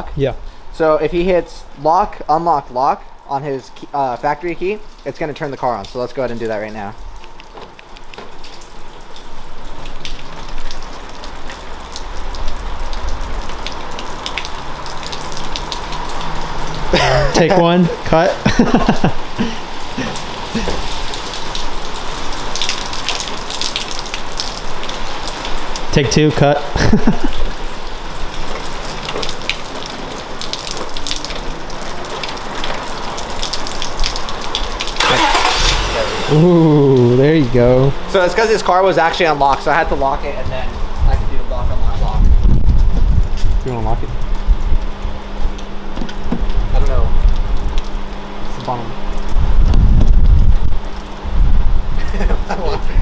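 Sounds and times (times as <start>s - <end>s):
rain on wet pavement: 0.5s - 53.0s
sharp drip clicks: 3.7s - 16.3s, 20.0s - 25.9s, 28.3s - 35.4s, 43.4s - 49.8s.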